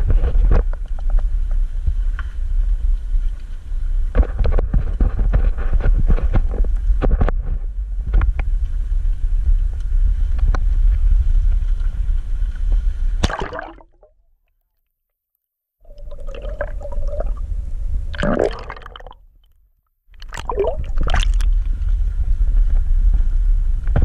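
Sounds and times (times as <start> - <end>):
splash into water: 13.2 - 14.1, 18.1 - 19.2, 20.2 - 21.6
muffled underwater gurgling: 15.9 - 17.5, 18.1 - 19.2, 20.2 - 21.7
low rumble: 15.9 - 19.2.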